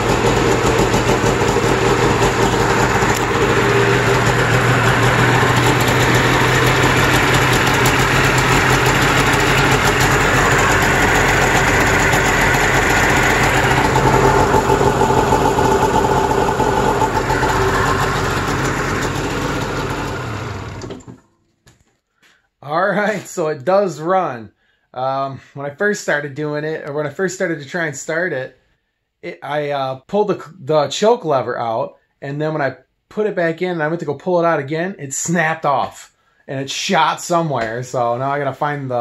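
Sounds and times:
snowmobile engine idling: 0:00.0 - 0:20.9.

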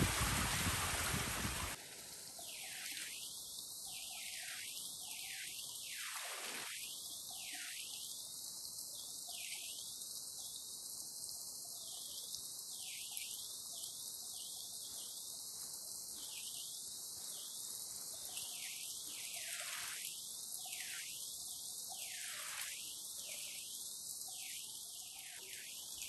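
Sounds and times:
waterfall rushing over rocks: 0:00.0 - 0:01.8.

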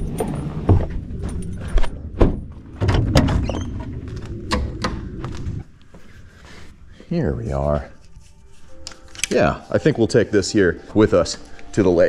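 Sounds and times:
low rumble: 0:00.0 - 0:05.8
sharp knocks and clicks: 0:04.2 - 0:05.4.

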